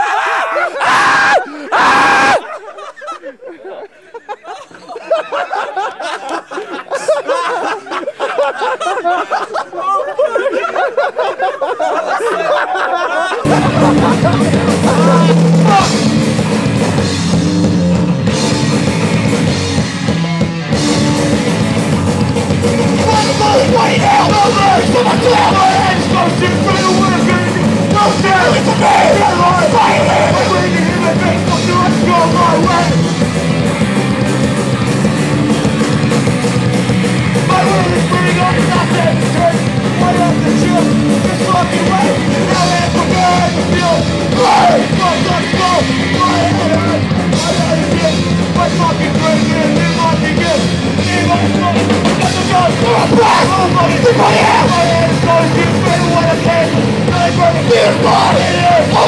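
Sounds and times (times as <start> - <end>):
drums: 0.0 - 3.4, 13.4 - 59.0
bass guitar: 13.4 - 59.0
electric guitars: 13.4 - 59.0
person singing into a microphone: 22.8 - 33.0, 51.0 - 59.0.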